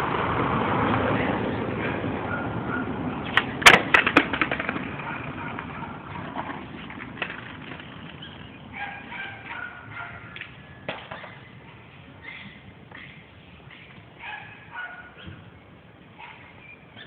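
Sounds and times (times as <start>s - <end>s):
skateboard wheels rolling on concrete: 0.0s - 17.0s
sharp skateboard clacks: 3.2s - 8.5s.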